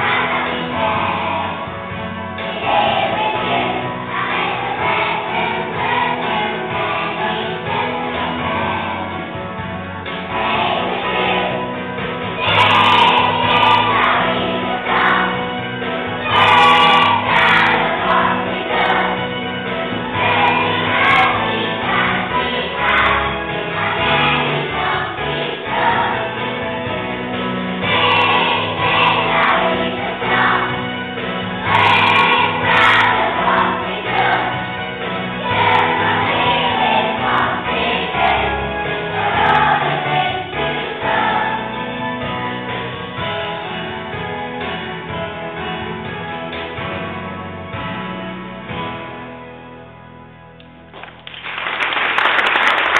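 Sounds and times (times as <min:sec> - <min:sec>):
children singing: 0:00.0 - 0:01.7, 0:02.4 - 0:09.2, 0:10.2 - 0:42.0
music playing: 0:00.0 - 0:52.9.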